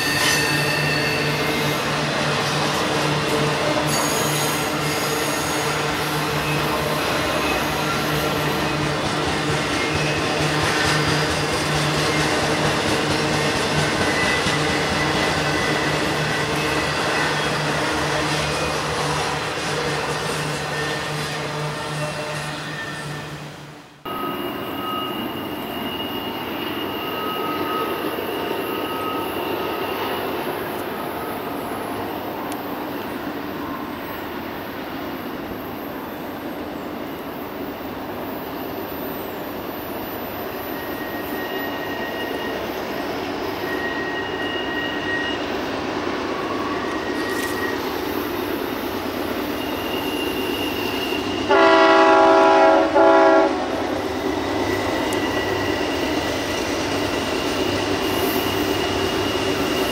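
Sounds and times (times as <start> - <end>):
train wheel squeals: 0.0 - 59.9
locomotive air horn: 50.0 - 53.8.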